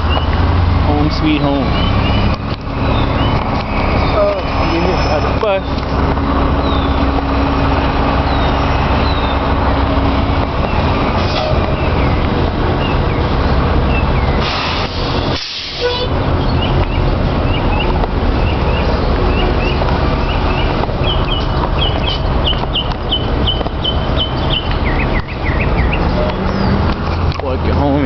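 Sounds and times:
birds chirping: 0.0 - 28.0
street traffic rumble: 0.0 - 28.0
short hiss: 14.4 - 15.8.

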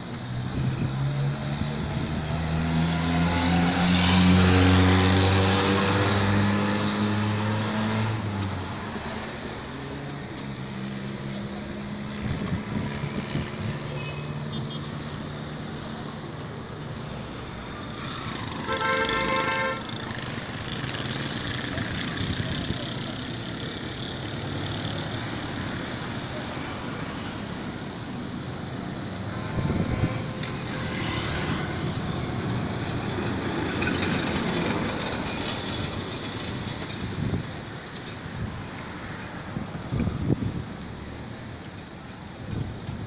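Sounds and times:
vehicle engine accelerating past: 0.5 - 8.2
car horn: 13.9 - 14.9, 18.6 - 20.0.

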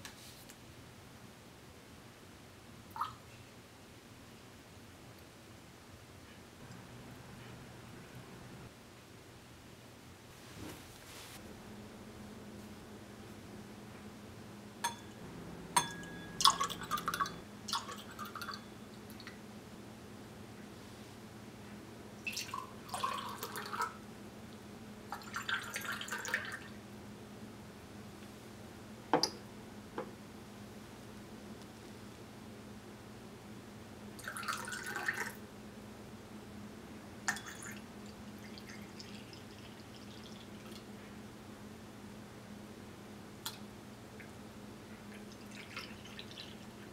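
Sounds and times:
glass clinks: 14.8 - 15.2, 15.8 - 16.6
juice pouring into glass: 16.4 - 18.6, 22.3 - 24.0, 25.1 - 26.7, 34.2 - 35.4, 37.3 - 40.8, 45.2 - 46.8
bubbles fizzing: 25.1 - 26.7, 37.3 - 40.9, 45.1 - 46.9.

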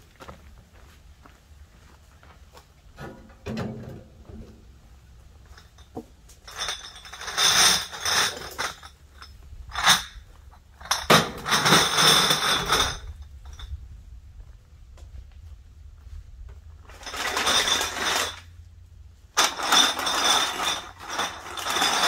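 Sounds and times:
cans and bottles clinking: 10.8 - 13.6, 16.9 - 18.5, 19.4 - 22.0
plastic bags rustling: 16.9 - 18.4.

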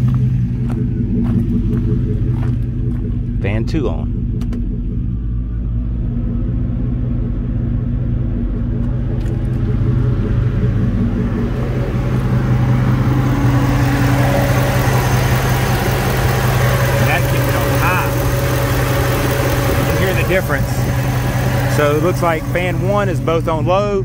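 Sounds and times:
car engine idling: 0.0 - 24.0
radiator fan rushing air: 11.3 - 23.4.

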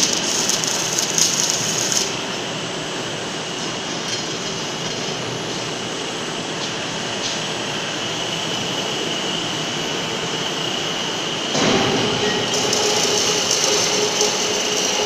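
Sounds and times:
electric gear motors humming: 11.6 - 15.0.

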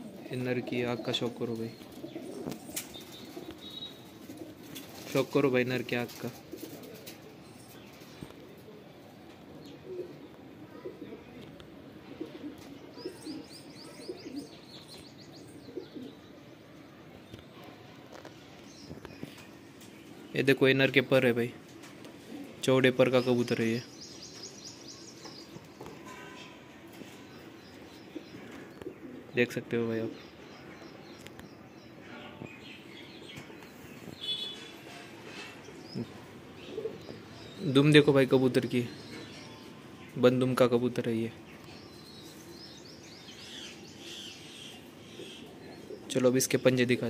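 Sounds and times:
pigeons cooing: 0.0 - 5.2, 6.1 - 16.4, 21.8 - 22.6, 25.2 - 29.4, 32.9 - 37.9, 41.8 - 46.1
bird chirps: 1.7 - 4.4, 12.9 - 17.7, 23.1 - 29.2, 30.0 - 40.3.

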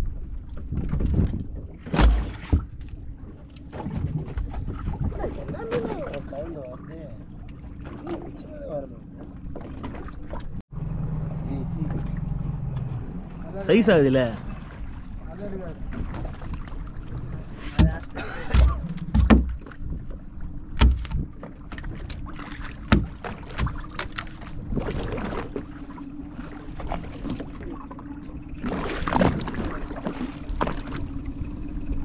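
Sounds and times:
steady low hum: 0.0 - 32.0
wind and water rushing: 12.1 - 32.0.

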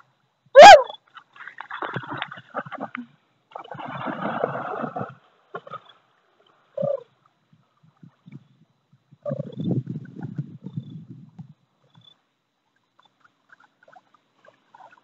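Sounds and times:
dog paddling in water: 1.0 - 6.7, 12.8 - 15.0
dog splashing through water: 1.4 - 3.0, 3.6 - 5.8.

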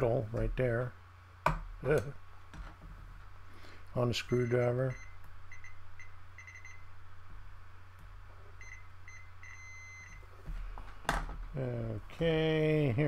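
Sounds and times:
multimeter continuity beeps: 4.1 - 6.9, 8.6 - 10.3.

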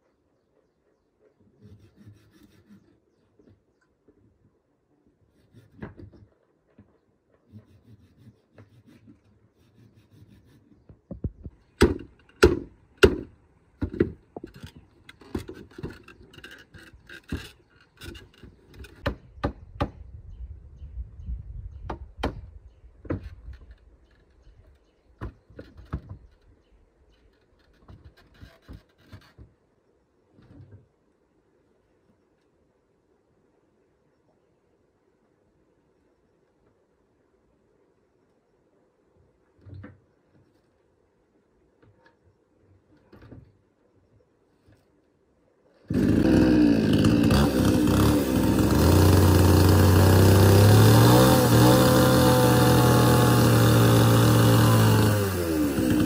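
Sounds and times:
wood scraping: 1.4 - 3.6, 5.2 - 19.2, 23.0 - 29.6, 45.9 - 56.0.

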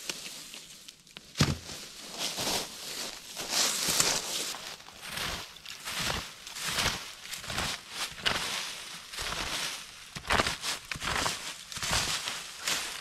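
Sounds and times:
dry leaves and wood crunching: 0.0 - 13.0.

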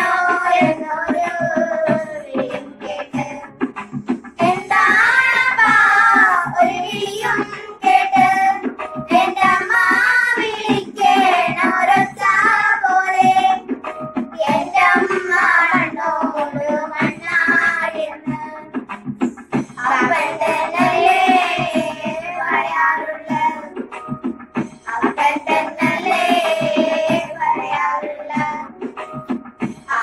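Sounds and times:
girls singing folk song: 0.0 - 3.6, 4.4 - 13.8, 14.4 - 18.9, 19.8 - 23.9, 24.9 - 28.8.

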